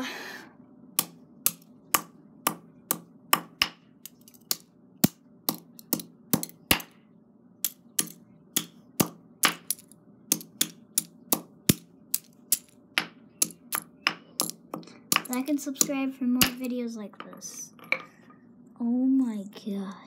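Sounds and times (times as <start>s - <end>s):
hammer smashing plastic earbuds: 1.0s - 7.0s, 7.6s - 16.6s.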